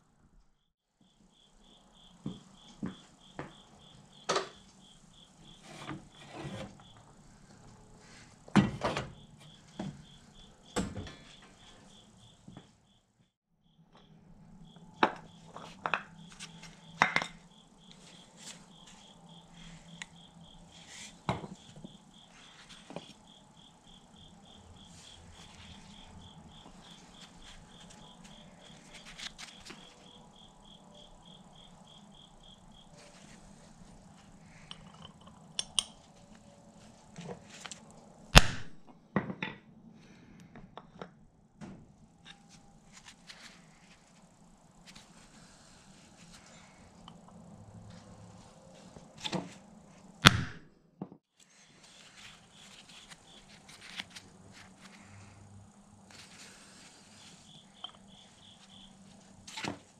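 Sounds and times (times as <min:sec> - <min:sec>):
hammer strike: 0:50.2 - 0:50.6.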